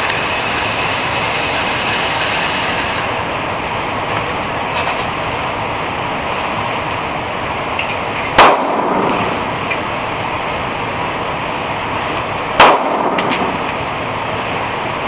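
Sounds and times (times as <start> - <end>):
loud rushing background noise: 0.0 - 15.0
pistol shots with echo: 8.4 - 9.4, 12.6 - 13.6
faint light clinks: 9.3 - 10.1.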